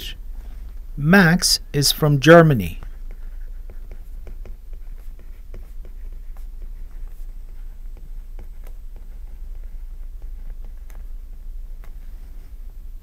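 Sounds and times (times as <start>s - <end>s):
stylus tapping and scratching: 2.7s - 12.8s.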